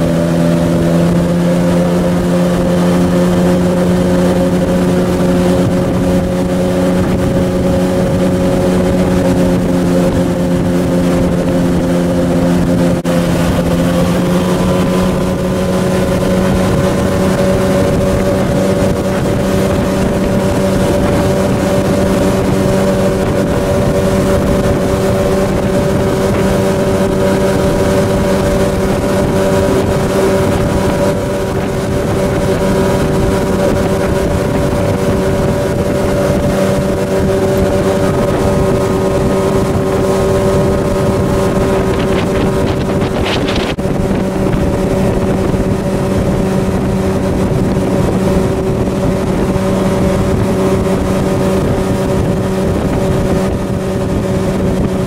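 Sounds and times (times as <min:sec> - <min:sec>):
motorboat engine running: 0:00.0 - 0:55.0.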